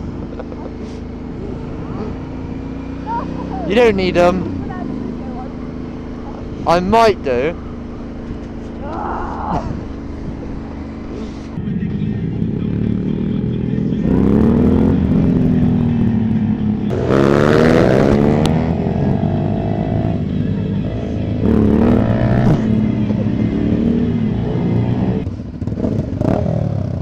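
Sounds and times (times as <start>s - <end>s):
motorcycle engines accelerating: 0.0s - 27.0s.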